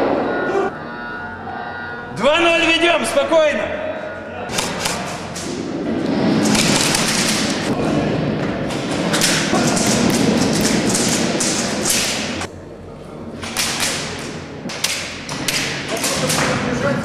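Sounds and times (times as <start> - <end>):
airsoft gun shots: 4.5 - 5.2.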